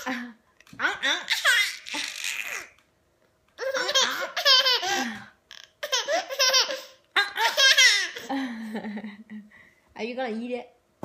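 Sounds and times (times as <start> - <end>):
toddler laughing: 0.8 - 2.8, 3.6 - 8.4.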